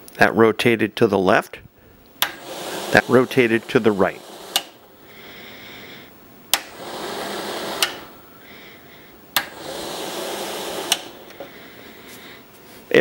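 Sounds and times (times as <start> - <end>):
roof vent fan running: 0.0 - 13.0
switch clicking: 2.0 - 2.4, 4.5 - 4.8, 6.5 - 6.7, 7.8 - 8.1, 9.3 - 9.6, 10.9 - 11.5.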